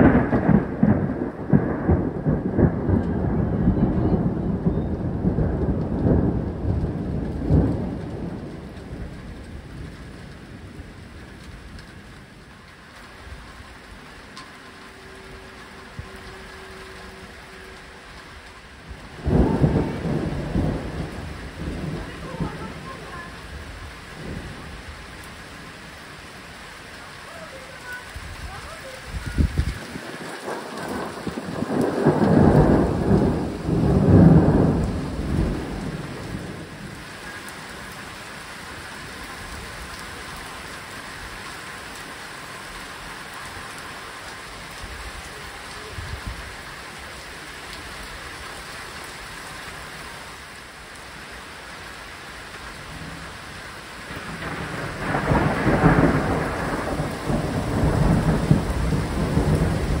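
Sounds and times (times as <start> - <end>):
thunder rolling: 0.0 - 12.8, 14.3 - 26.5, 27.8 - 37.4, 54.0 - 60.0
heavy rain: 0.0 - 60.0.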